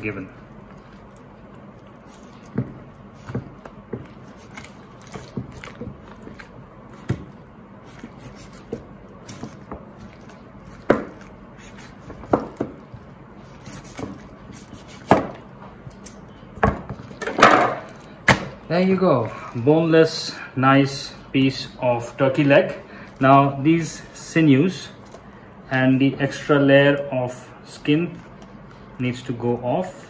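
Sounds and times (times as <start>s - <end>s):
knife cutting on bone and board: 13.4s - 15.4s.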